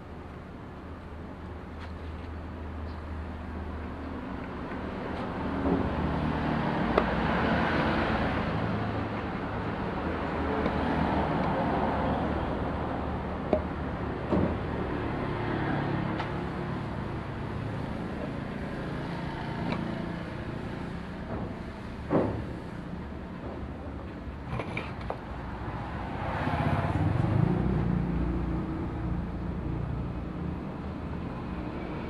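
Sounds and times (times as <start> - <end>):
sharp knocks: 21.2 - 22.6.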